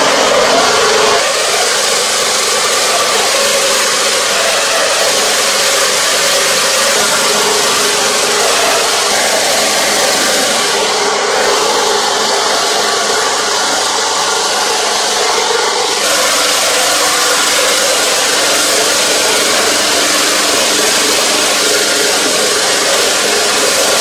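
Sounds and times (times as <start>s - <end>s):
grinding mill running: 0.0s - 24.0s.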